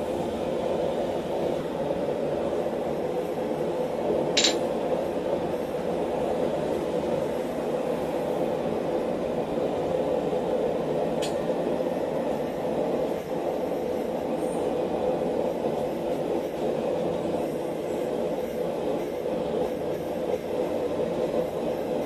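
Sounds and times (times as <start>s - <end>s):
sharp metal clink: 4.4s - 4.6s.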